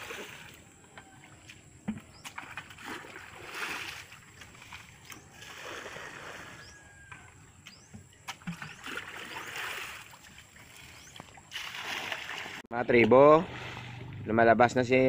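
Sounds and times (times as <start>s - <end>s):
muddy water splashing and pouring: 0.0s - 7.3s, 8.2s - 14.4s.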